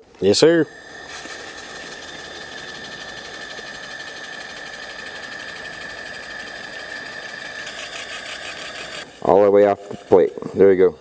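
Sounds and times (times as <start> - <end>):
laser welder buzzing: 0.1 - 10.4.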